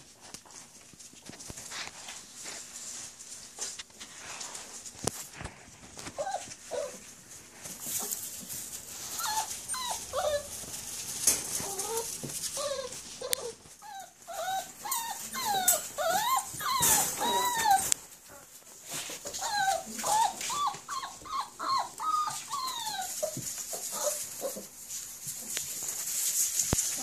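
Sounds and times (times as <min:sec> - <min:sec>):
scuffling in wood shavings: 0:00.0 - 0:27.0
puppies whimpering and yipping: 0:06.1 - 0:07.1, 0:08.9 - 0:10.8, 0:11.4 - 0:24.8.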